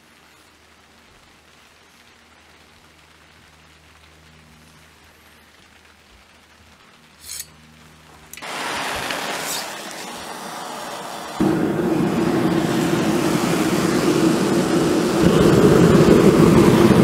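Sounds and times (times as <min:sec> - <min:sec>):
faint background hiss: 0:00.0 - 0:12.5
propane torch hissing: 0:08.3 - 0:17.0.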